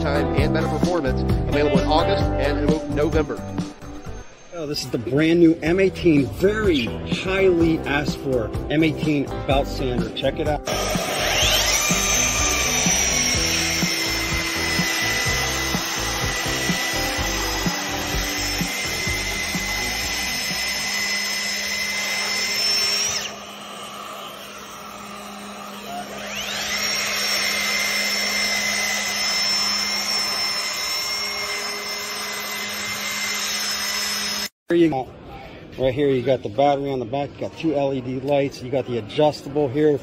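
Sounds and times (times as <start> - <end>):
belt sander whining and sanding: 10.6 - 34.6.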